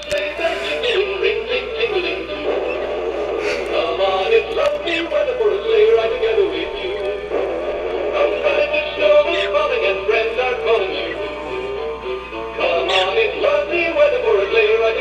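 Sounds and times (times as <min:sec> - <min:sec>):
electronic toy voice singing: 0:00.0 - 0:03.0, 0:08.2 - 0:15.0.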